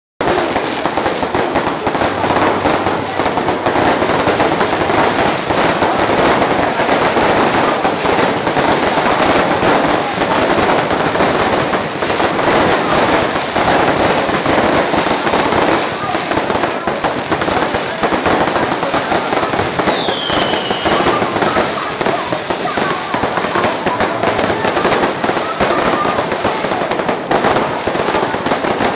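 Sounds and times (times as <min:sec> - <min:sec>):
fireworks crackling bangs: 0:00.2 - 0:28.9
falling firework whistle: 0:19.8 - 0:22.6.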